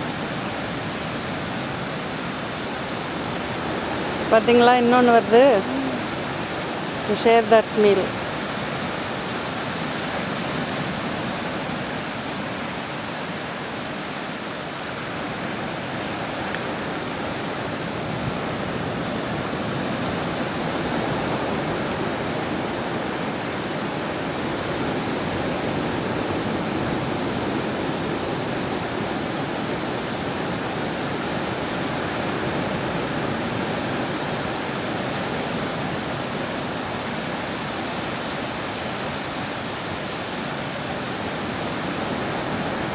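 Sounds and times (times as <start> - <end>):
sea washing on shore: 0.0 - 42.9.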